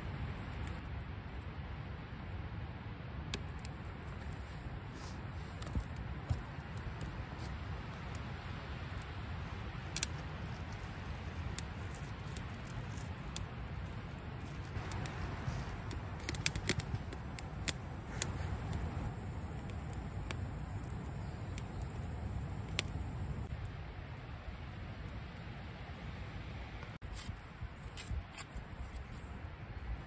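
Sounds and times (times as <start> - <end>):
wood fire crackling and popping: 0.0 - 1.5, 3.3 - 23.8
low wind rumble: 0.0 - 30.0.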